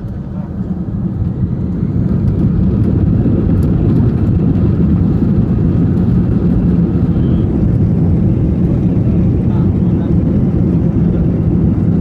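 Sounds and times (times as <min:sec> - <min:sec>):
jet engines rumbling: 0:00.0 - 0:12.0.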